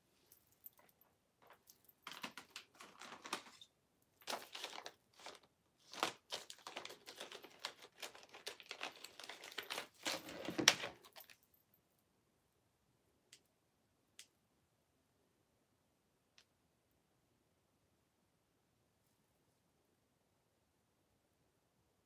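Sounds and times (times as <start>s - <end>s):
plastic packaging crinkling: 1.4s - 11.4s.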